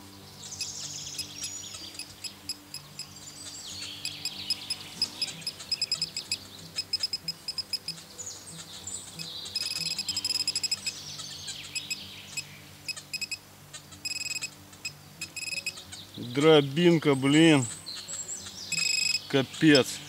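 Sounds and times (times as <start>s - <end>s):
birds chirping: 0.0s - 20.0s
metal detector short high beeps: 4.0s - 8.0s, 9.6s - 11.0s, 12.9s - 13.4s, 14.0s - 15.8s, 18.7s - 19.2s.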